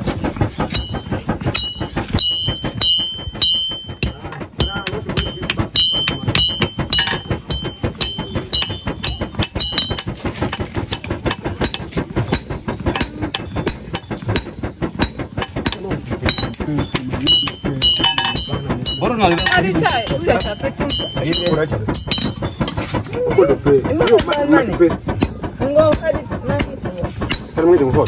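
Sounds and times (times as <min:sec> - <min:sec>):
high metallic ring: 0:00.7 - 0:10.2, 0:16.3 - 0:22.7
hammer striking metal on anvil: 0:00.7 - 0:24.5.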